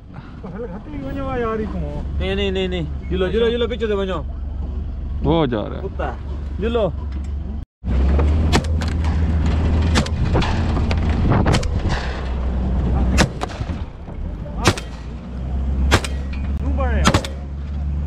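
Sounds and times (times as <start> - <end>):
vehicle engine humming: 0.0 - 18.0
shotgun shots: 13.2 - 13.8, 14.6 - 15.2, 15.9 - 16.4, 17.0 - 17.5.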